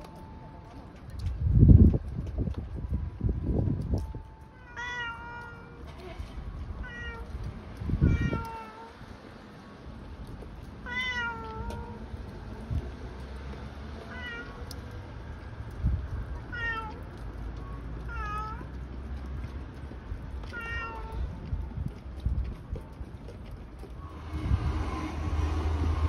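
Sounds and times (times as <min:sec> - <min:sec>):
cat meowing: 0:04.6 - 0:05.9, 0:06.8 - 0:07.3, 0:08.0 - 0:08.9, 0:10.8 - 0:12.0, 0:14.1 - 0:14.8, 0:16.4 - 0:17.2, 0:18.0 - 0:18.7, 0:20.4 - 0:21.3
low rumbling thumps: 0:23.9 - 0:26.0.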